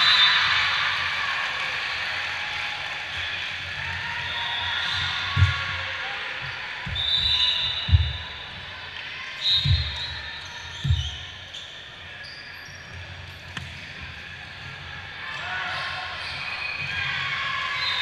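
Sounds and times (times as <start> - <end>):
ball bouncing on wooden floor: 6.9 - 8.3, 9.6 - 10.1, 10.8 - 11.2.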